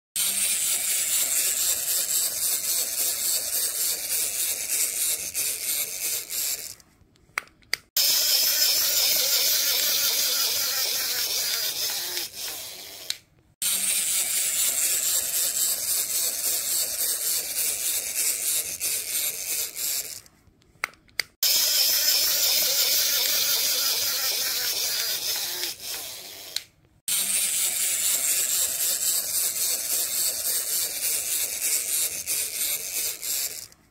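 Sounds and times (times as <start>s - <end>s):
toy motor and gears whirring: 0.2s - 6.9s, 7.8s - 20.3s, 21.2s - 33.9s.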